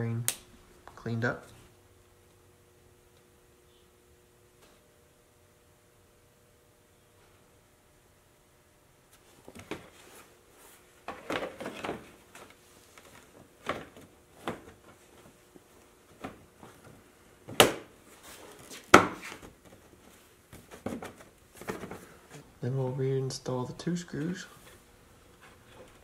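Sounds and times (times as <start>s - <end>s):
plastic rustling: 18.0s - 22.5s.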